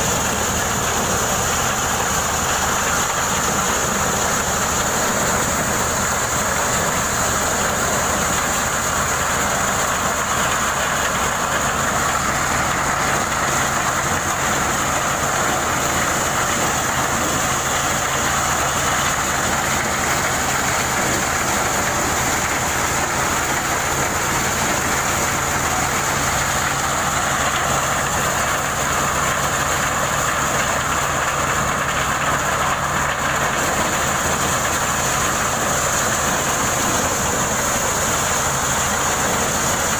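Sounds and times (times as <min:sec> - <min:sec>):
corn sheller machine running: 0:00.0 - 0:39.9.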